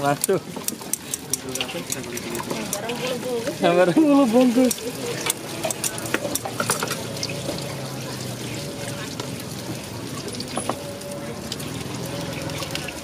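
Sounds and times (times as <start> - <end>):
frying sizzle: 0.0 - 13.0.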